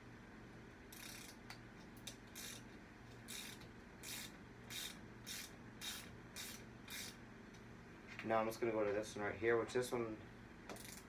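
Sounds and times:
ratchet wrench clicking: 0.9s - 1.4s, 2.3s - 2.6s, 3.3s - 7.2s, 10.7s - 11.0s.

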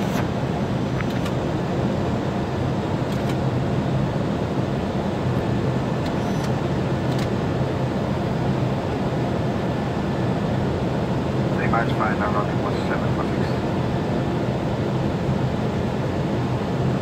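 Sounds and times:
aircraft engine hum: 0.0s - 17.0s.

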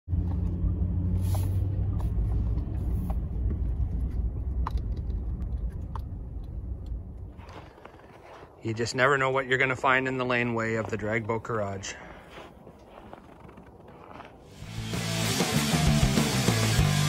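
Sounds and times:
engine and tyre rumble in cabin: 0.1s - 8.4s.

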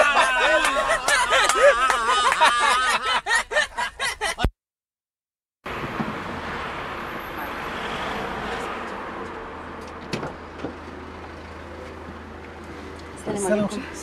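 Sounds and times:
car engine and road noise: 5.6s - 14.0s.

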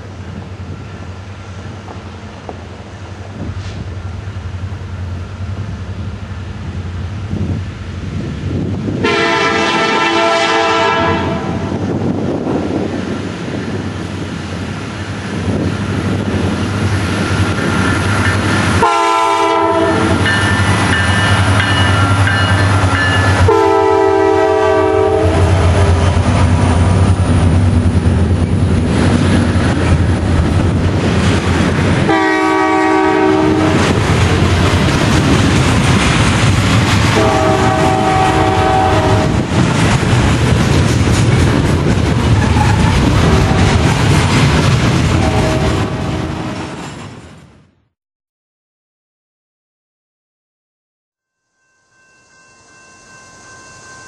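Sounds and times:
locomotive air horn blasts: 9.0s - 11.8s, 18.8s - 20.2s, 23.3s - 26.1s, 32.1s - 33.9s, 37.2s - 39.5s, 42.4s - 43.7s, 45.2s - 46.7s
train wheels clicking over rails: 20.0s - 23.5s, 33.3s - 45.6s.

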